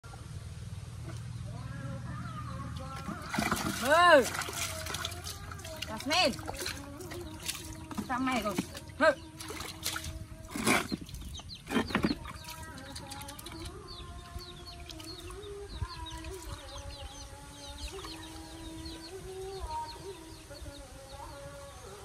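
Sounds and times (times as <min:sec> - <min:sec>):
water splashing in plastic basin: 0:02.8 - 0:16.9.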